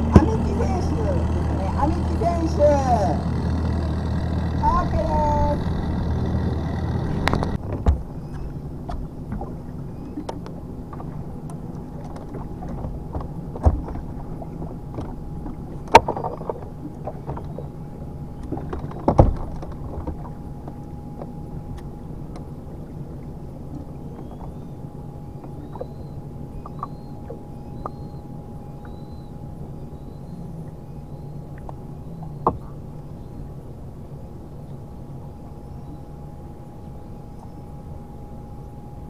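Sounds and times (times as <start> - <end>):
electric trolling motor humming: 0.0 - 7.6, 34.4 - 39.0.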